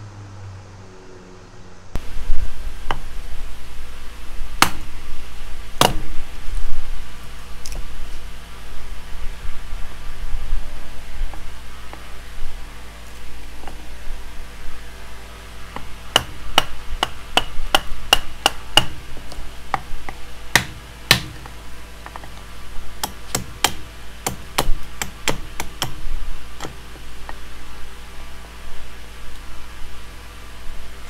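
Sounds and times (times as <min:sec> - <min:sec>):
hammer blows on wood: 0:19.7 - 0:21.5.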